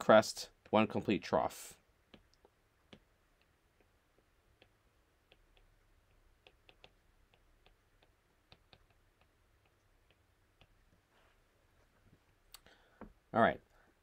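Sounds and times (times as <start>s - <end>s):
stylus tapping on glass screen: 2.1s - 10.8s.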